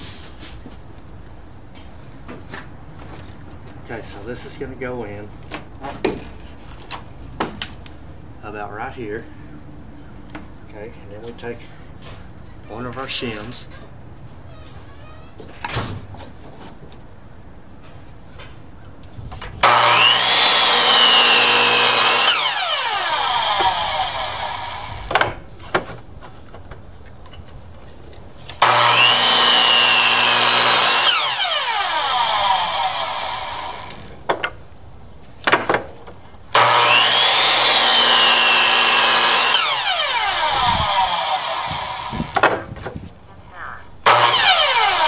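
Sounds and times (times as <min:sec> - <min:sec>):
saw winding down whine: 0:19.6 - 0:25.1, 0:28.6 - 0:34.1, 0:36.6 - 0:42.4, 0:44.1 - 0:45.0
miter saw cutting wood: 0:19.6 - 0:25.2, 0:28.6 - 0:34.2, 0:36.5 - 0:42.5, 0:44.0 - 0:45.0.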